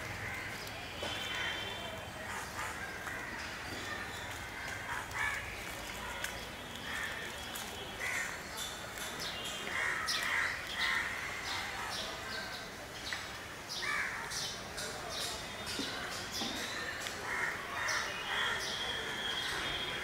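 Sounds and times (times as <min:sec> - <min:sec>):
crows cawing: 0:00.2 - 0:01.6, 0:02.3 - 0:05.6, 0:06.8 - 0:07.3, 0:08.0 - 0:08.4, 0:09.7 - 0:11.9, 0:13.8 - 0:14.3, 0:16.6 - 0:18.8.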